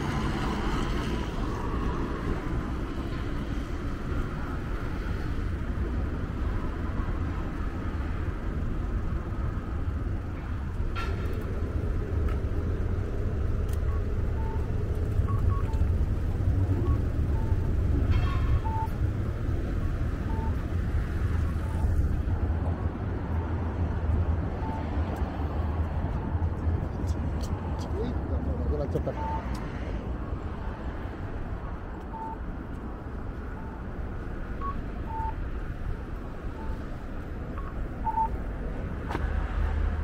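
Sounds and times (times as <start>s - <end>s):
road traffic rumble: 0.0s - 40.0s.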